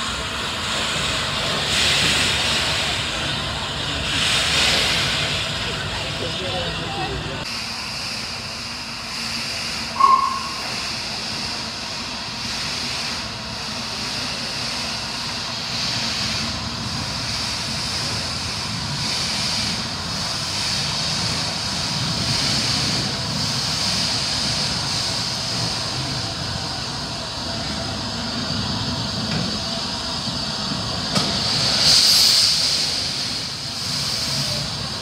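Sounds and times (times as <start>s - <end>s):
locomotive low rumble: 0.0s - 35.0s
steam locomotive hiss: 0.0s - 35.0s
sharp blip: 10.0s - 10.7s.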